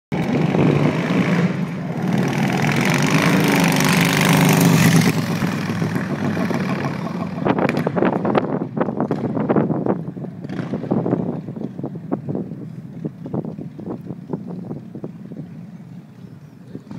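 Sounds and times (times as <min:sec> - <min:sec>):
motorcycle engine passing: 0:00.2 - 0:16.9
wind buffeting microphone: 0:00.2 - 0:16.9.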